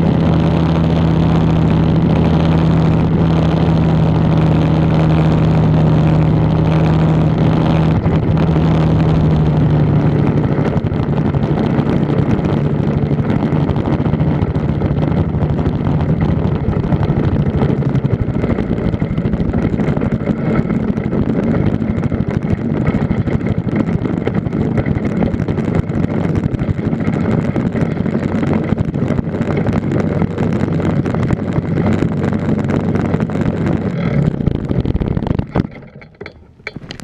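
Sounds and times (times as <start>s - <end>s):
two-stroke engine running: 0.0s - 37.0s
wind buffeting microphone: 0.0s - 37.0s
clicks: 33.8s - 37.0s.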